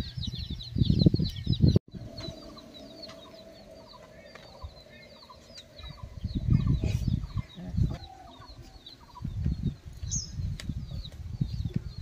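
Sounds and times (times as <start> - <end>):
small birds chirping: 0.0 - 12.0
hens clucking: 2.0 - 9.3.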